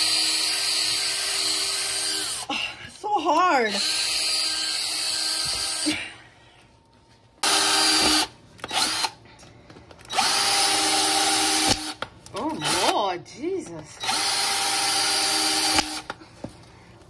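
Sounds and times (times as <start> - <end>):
cordless drill drilling plastic: 0.0 - 2.5, 3.7 - 5.9, 7.4 - 9.2, 10.1 - 12.0, 14.0 - 16.1.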